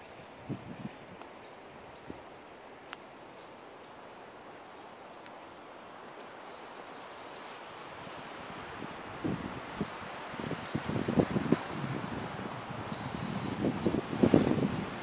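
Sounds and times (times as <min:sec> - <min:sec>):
forest ambience with hiss: 0:00.0 - 0:15.0
bird chirping: 0:01.3 - 0:02.3, 0:04.4 - 0:05.4.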